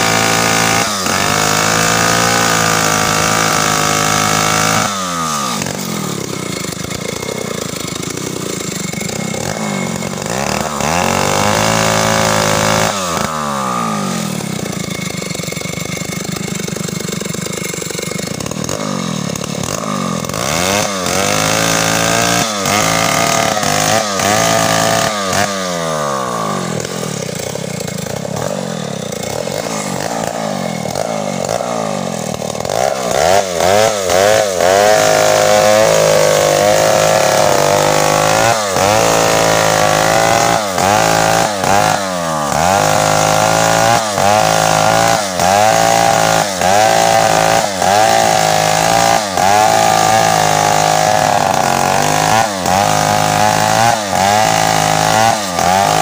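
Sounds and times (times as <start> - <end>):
chainsaw sawing through tree trunk: 0.0 - 56.0.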